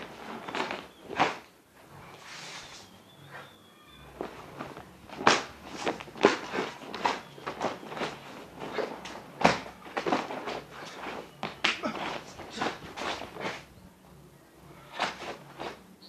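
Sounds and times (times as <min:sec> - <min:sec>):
cloth swishing and snapping: 0:00.0 - 0:01.5, 0:04.2 - 0:13.7, 0:14.9 - 0:15.8
footfalls: 0:00.0 - 0:01.5, 0:04.1 - 0:13.7.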